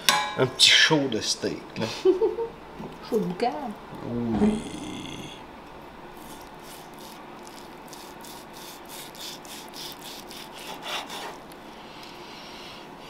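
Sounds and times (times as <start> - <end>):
knife sawing through steak: 6.2 - 11.4.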